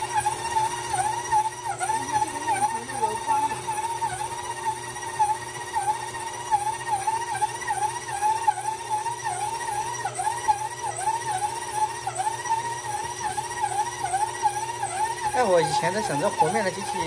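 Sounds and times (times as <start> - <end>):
stand mixer motor whine: 0.0 - 17.0.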